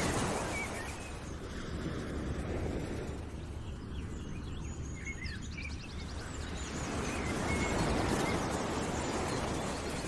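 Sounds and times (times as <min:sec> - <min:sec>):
small birds chirping: 0:03.1 - 0:10.0.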